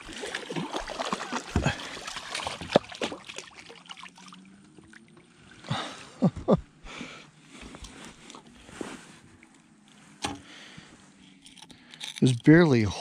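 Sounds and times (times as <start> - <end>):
water dripping and splashing: 0.0 - 5.2.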